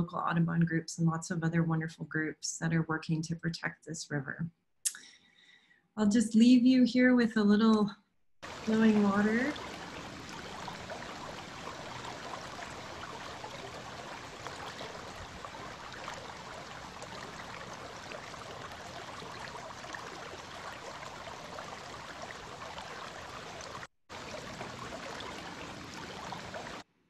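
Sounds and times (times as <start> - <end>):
river water rushing over gravel: 8.4 - 26.8
faint water splashing: 8.4 - 26.9.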